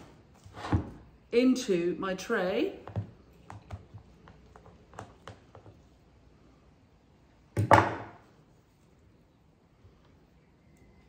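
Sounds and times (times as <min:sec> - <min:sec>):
snips clattering on wooden bench: 0:07.6 - 0:08.2.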